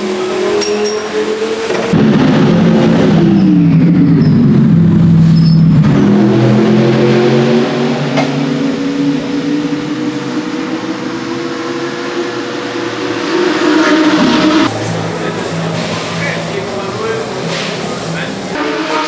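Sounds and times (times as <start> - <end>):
race car engine idling: 13.9 - 18.6.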